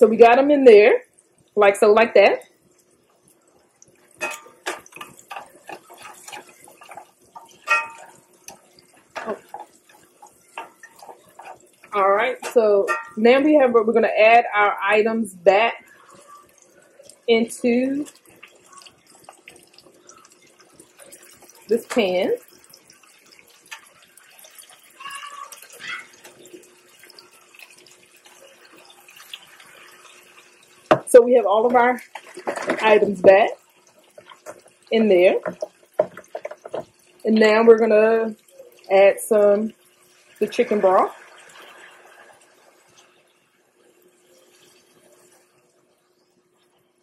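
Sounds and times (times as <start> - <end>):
light sizzle: 0.0 - 47.0
metal tongs clinking on a pan: 4.2 - 11.8, 12.4 - 13.2.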